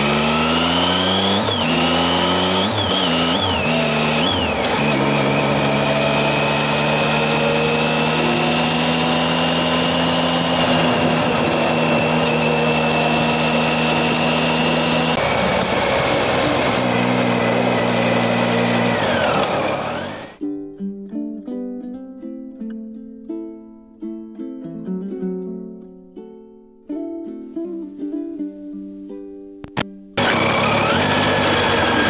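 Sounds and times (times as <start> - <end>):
motorcycle engine cruising: 0.0 - 20.4, 30.2 - 32.0.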